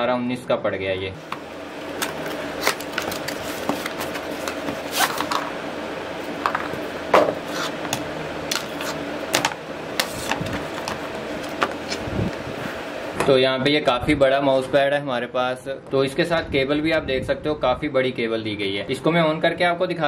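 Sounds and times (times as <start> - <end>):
steady low hum: 0.0 - 19.4
mouse pad being unrolled: 1.9 - 5.5, 6.7 - 12.2.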